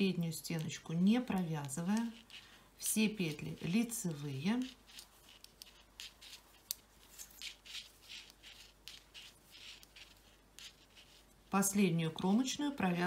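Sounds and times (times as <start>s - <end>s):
knitting needles clicking: 0.4s - 9.1s
yarn rustling: 1.5s - 11.5s.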